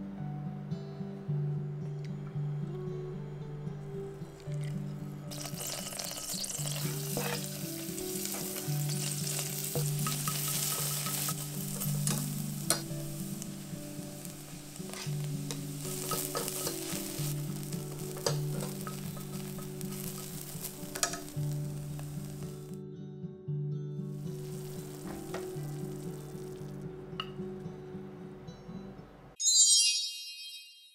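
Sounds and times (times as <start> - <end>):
vegetables sizzling in hot oil: 4.5 - 22.8, 24.2 - 26.8
chopsticks clicking against pan: 9.8 - 12.9, 18.2 - 21.3.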